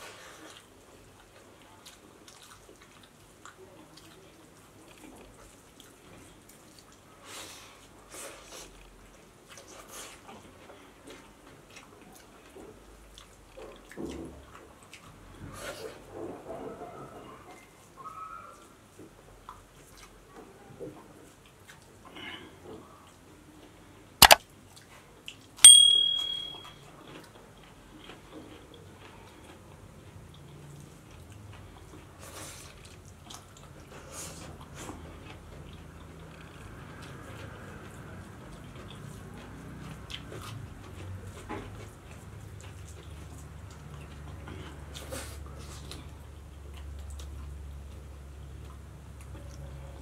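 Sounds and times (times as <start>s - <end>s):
faint eating sounds: 0.0s - 25.6s, 27.1s - 50.0s
ringing clink on tableware: 25.6s - 26.8s
wet chewing and lip smacks: 38.5s - 45.1s, 45.8s - 49.6s.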